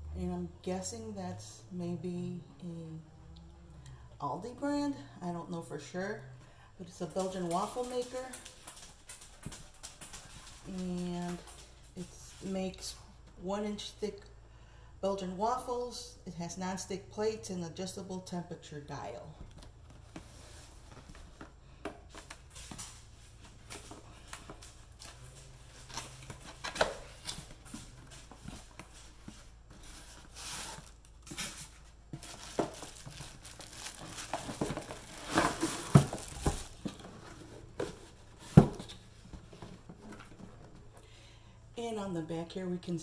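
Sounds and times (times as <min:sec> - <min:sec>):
plastic and cardboard rustling: 0:06.9 - 0:12.5, 0:19.5 - 0:41.0.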